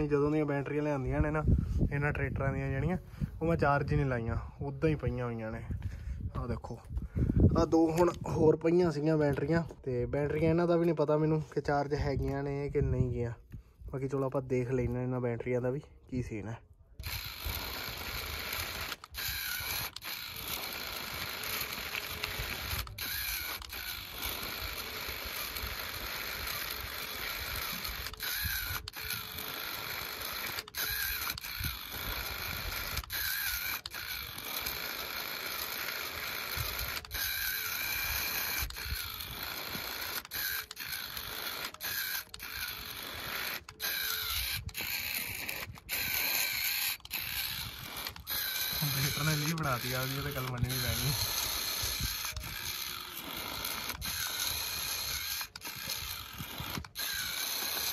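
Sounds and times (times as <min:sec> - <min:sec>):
electric gear motor whining and grinding: 0:17.0 - 0:57.9
wheels digging into sand: 0:17.1 - 0:57.9.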